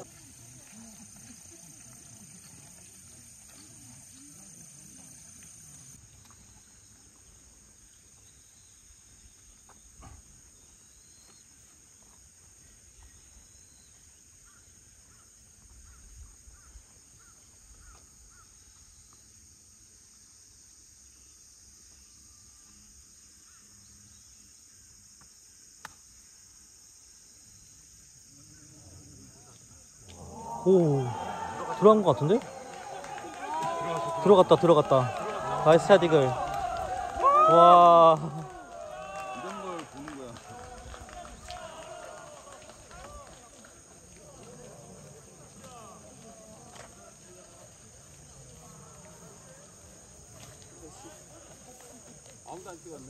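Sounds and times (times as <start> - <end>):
faint bird chirps: 12.6 - 19.3.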